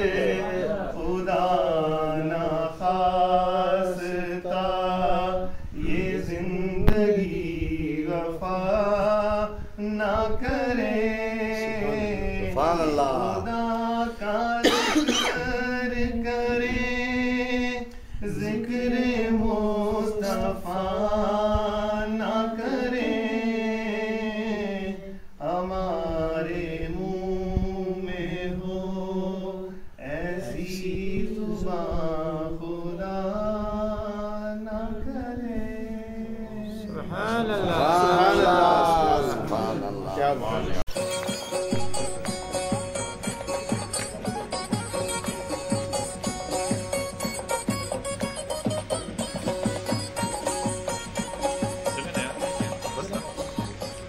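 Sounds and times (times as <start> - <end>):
man singing unaccompanied: 0.0 - 43.6.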